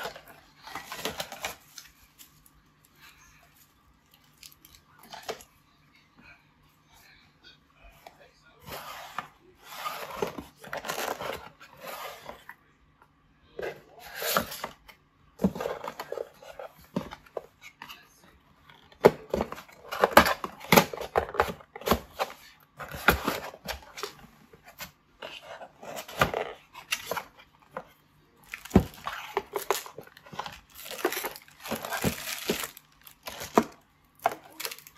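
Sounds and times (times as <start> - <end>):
plastic wrap crinkling: 28.4 - 34.9.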